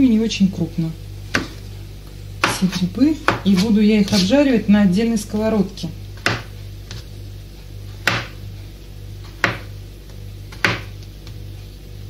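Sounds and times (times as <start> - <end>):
knife chopping on plastic board: 1.3 - 1.6, 2.4 - 4.3, 6.2 - 7.1, 8.0 - 8.4, 9.2 - 9.7, 10.5 - 11.4.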